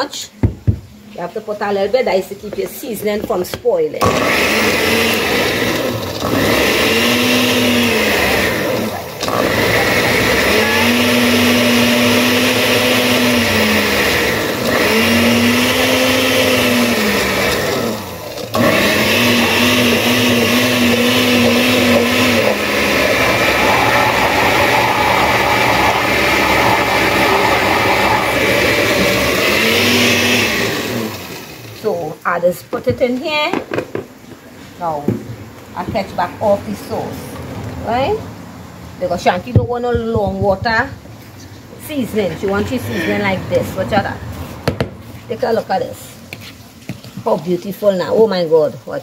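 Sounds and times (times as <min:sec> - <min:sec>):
blender running: 0:04.0 - 0:31.8.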